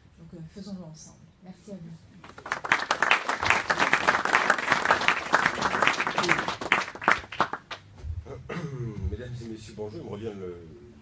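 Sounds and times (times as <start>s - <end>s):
audience applauding: 2.3s - 7.8s.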